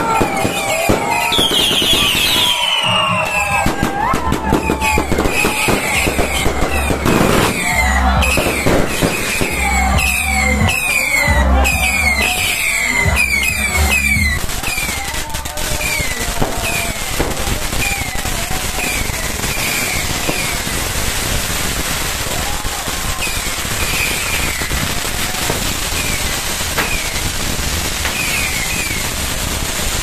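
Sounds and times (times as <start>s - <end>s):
fireworks crackling and popping: 0.0s - 30.0s
music with heavy bass beat: 3.8s - 14.6s.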